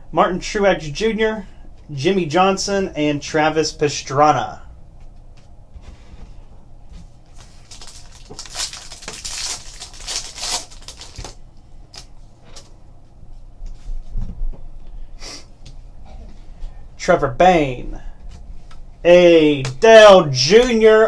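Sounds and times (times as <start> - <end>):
foil wrapper tearing and crinkling: 7.4 - 12.1.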